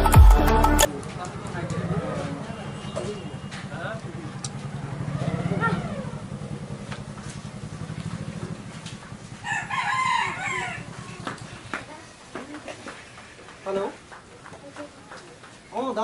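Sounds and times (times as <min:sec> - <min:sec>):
rooster crowing: 0:09.4 - 0:11.4.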